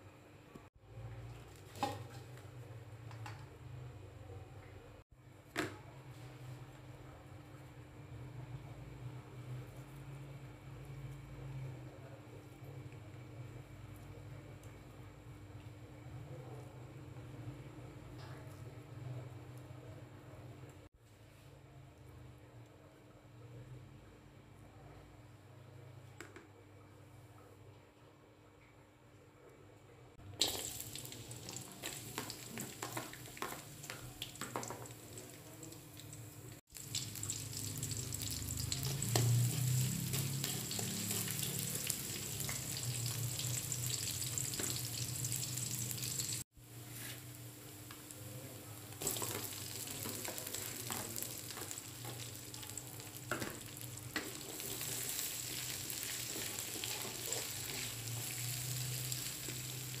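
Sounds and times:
food sizzling in hot oil: 0:30.4 - 0:46.4, 0:49.0 - 1:00.0.

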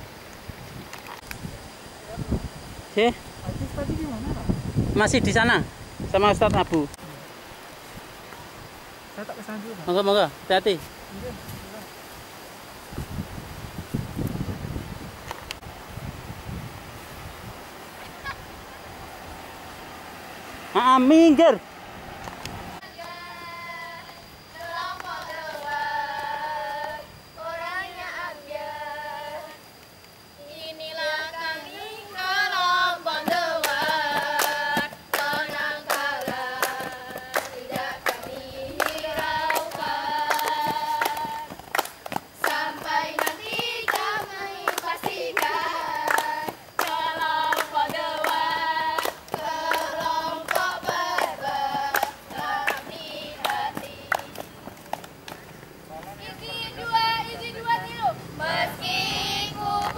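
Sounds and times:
young voices singing together: 0:22.8 - 0:29.8, 0:30.4 - 0:54.8, 0:56.0 - 0:59.9
hand claps: 0:33.2 - 0:56.1.

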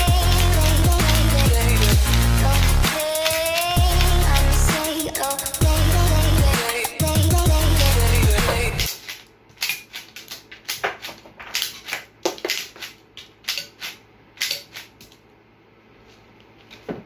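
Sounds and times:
toy rifle plastic clicks: 0:00.1 - 0:02.2, 0:03.0 - 0:04.5, 0:08.9 - 0:15.2.

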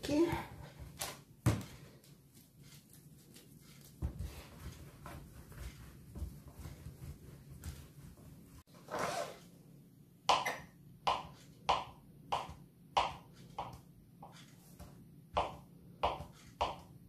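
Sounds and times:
hands rubbing dough: 0:00.7 - 0:08.7.

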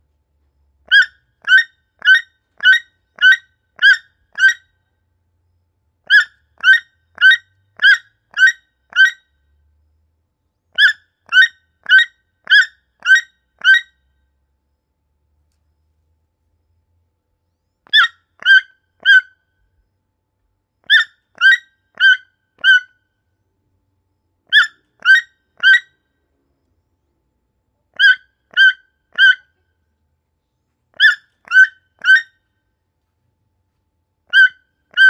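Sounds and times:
toucan croaking calls: 0:00.9 - 0:04.8, 0:06.0 - 0:09.3, 0:10.7 - 0:14.0, 0:17.8 - 0:19.4, 0:20.8 - 0:23.0, 0:24.5 - 0:26.0, 0:27.9 - 0:29.7, 0:30.9 - 0:32.4, 0:34.3 - 0:35.0.

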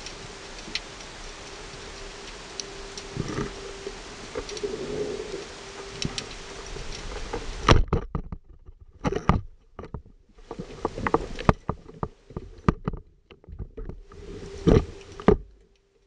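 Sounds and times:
steady hiss: 0:00.0 - 0:07.8, 0:10.3 - 0:12.8, 0:14.0 - 0:16.0.

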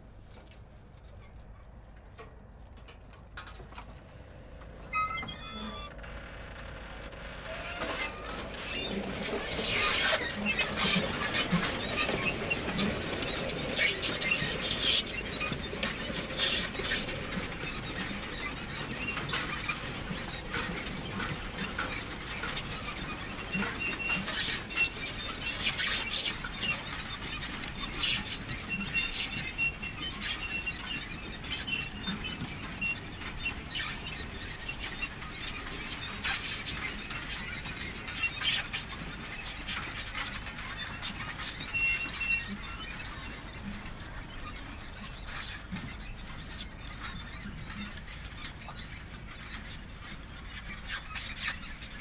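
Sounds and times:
manure spreader clattering: 0:02.3 - 0:51.8
short high squeaks: 0:04.8 - 0:17.2.

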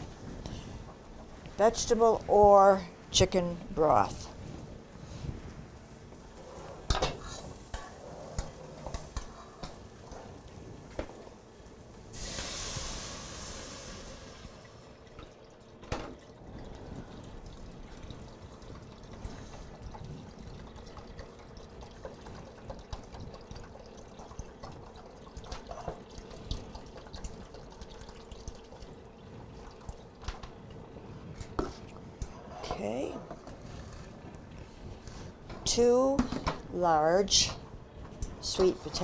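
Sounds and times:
broth pouring into pot: 0:12.1 - 0:32.2.

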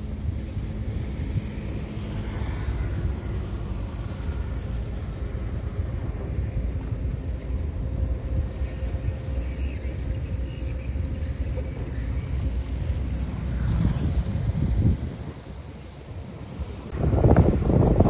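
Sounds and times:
diesel engine rumbling: 0:02.8 - 0:18.0.

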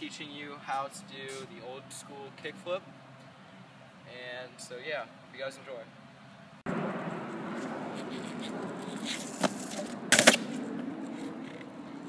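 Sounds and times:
longboard wheels rolling on asphalt: 0:06.7 - 0:12.0.

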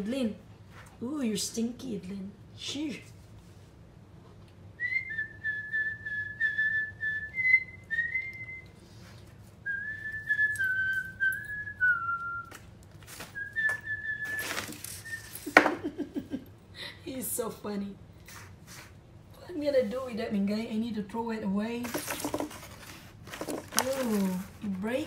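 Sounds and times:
person whistling a tune: 0:04.8 - 0:08.8, 0:09.6 - 0:12.6, 0:13.4 - 0:15.5.

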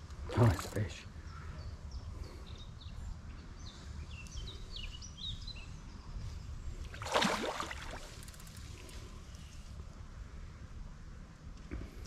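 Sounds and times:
birds chirping: 0:00.4 - 0:06.8
fish splashing in water: 0:07.0 - 0:08.2.

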